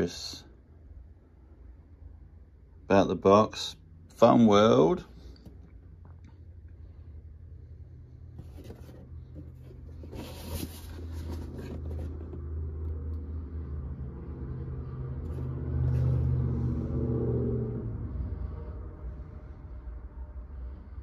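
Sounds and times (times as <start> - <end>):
low steady rumble: 0.0 - 21.0
cardboard box being handled: 8.3 - 12.6
cardboard scrape and rustle: 8.3 - 12.6.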